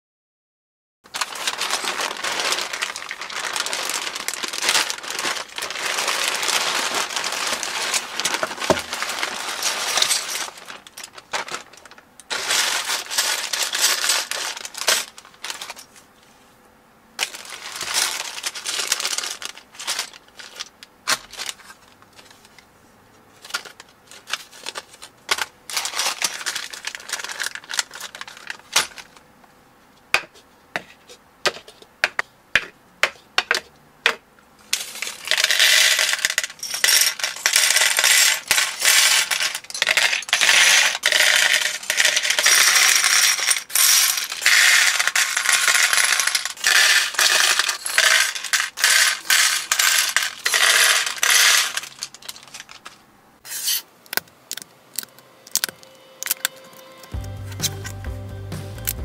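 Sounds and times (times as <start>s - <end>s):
plastic bags crinkling: 1.1s - 16.0s, 17.2s - 22.6s, 23.3s - 29.2s, 34.7s - 53.0s
plastic bricks clacking: 34.8s - 53.0s.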